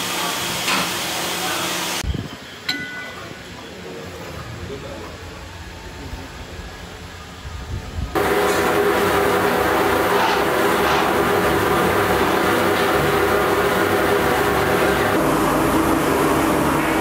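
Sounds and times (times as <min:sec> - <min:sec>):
extraction blower running: 0:08.2 - 0:17.0.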